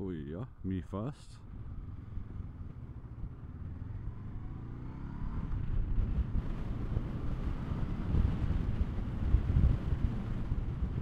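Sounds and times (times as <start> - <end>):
motorcycle engine accelerating: 1.4 - 11.0
wind rumble on microphone: 5.2 - 11.0.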